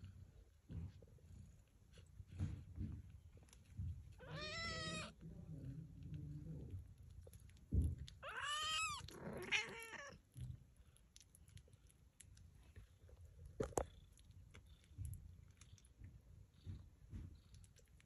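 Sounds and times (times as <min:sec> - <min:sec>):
cat crying roughly: 0:04.2 - 0:05.1, 0:08.2 - 0:10.1
cat meowing: 0:04.2 - 0:05.2, 0:08.2 - 0:10.2.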